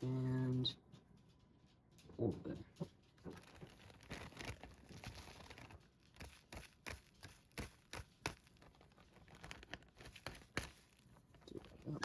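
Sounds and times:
plastic bag crinkling: 0:03.0 - 0:12.0.

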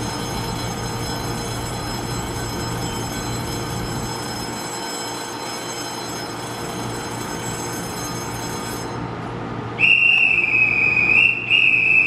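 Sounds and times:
electrical equipment hum: 0:00.0 - 0:12.0
shrill whistle: 0:09.8 - 0:12.0.

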